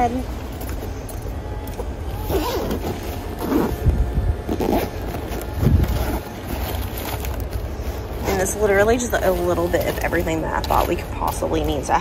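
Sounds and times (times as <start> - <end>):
low background rumble: 0.0 - 12.0
fabric bag being unzipped: 2.2 - 7.5.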